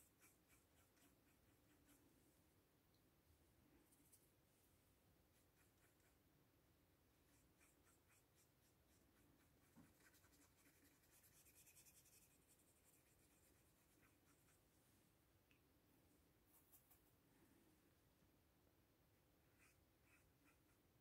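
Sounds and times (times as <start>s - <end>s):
paintbrush scratching on paper: 0.0s - 2.2s, 5.3s - 6.2s, 7.1s - 14.7s, 19.4s - 21.0s.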